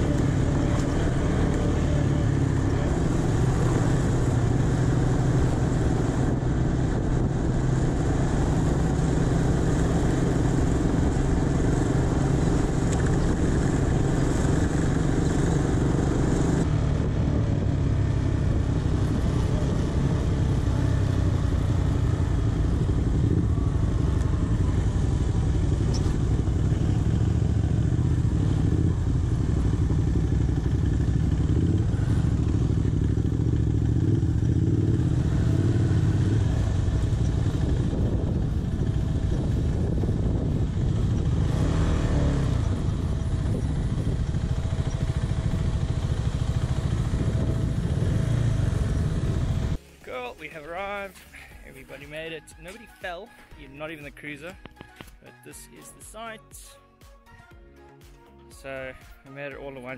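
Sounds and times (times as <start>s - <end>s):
motorcycle engine running: 0.0s - 50.0s
wind rushing over microphone: 2.5s - 49.8s.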